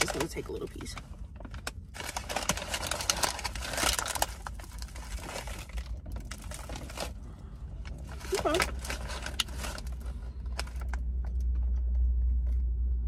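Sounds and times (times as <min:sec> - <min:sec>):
paper bag crinkling: 0:00.0 - 0:07.2, 0:08.0 - 0:11.0.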